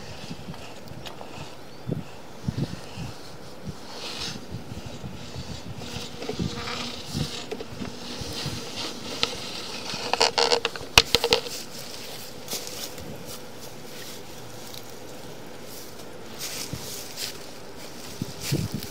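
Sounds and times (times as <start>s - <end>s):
camera cable scraping in pipe: 2.6s - 13.0s
sharp knocks and crackles: 5.2s - 13.5s.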